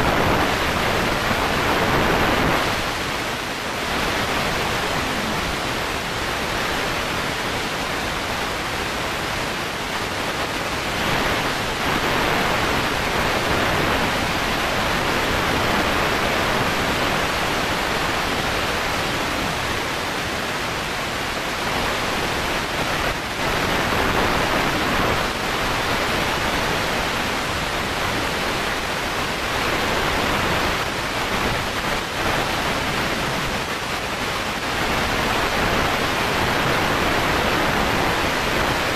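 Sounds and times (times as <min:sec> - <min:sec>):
loud rushing car cabin noise: 0:00.0 - 0:07.2.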